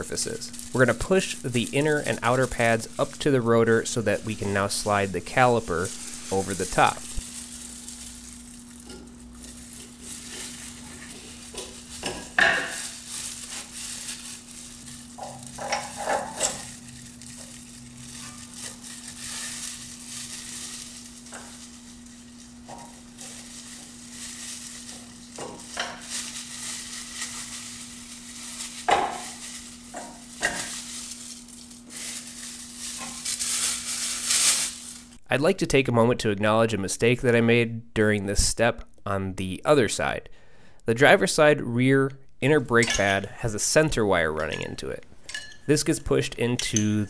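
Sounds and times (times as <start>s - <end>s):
plastic gloves crinkling: 0.0s - 35.2s
steady low hum: 0.0s - 35.6s.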